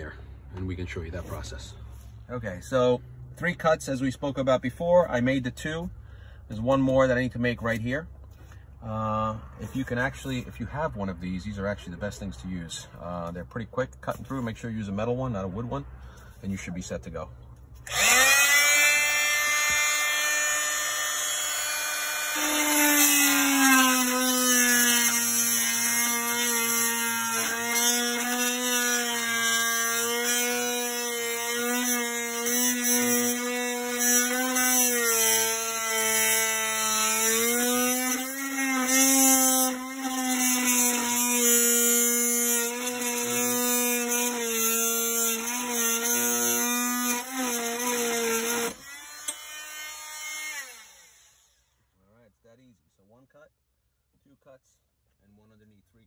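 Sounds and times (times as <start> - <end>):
oscillating multi-tool cutting metal: 17.8 - 51.7.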